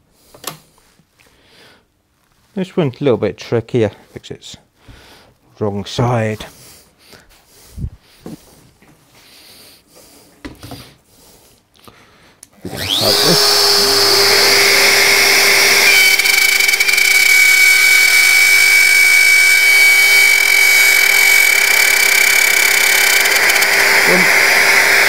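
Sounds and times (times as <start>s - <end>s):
router whining: 12.6s - 25.0s.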